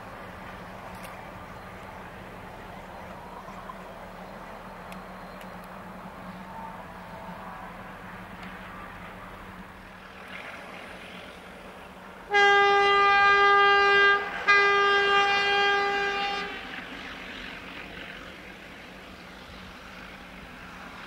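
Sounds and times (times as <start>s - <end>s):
diesel engines working hard: 0.0s - 21.0s
locomotive horn blasts: 12.3s - 16.8s.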